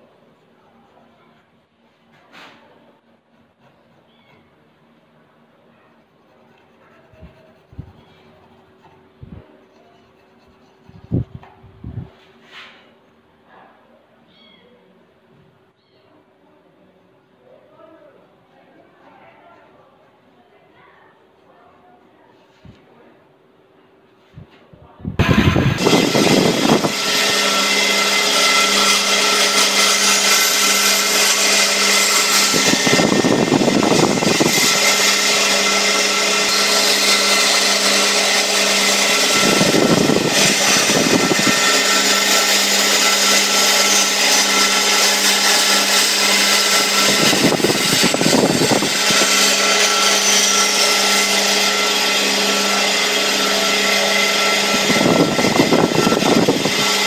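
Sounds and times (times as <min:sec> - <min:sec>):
band saw cutting wood: 0:25.2 - 0:57.0.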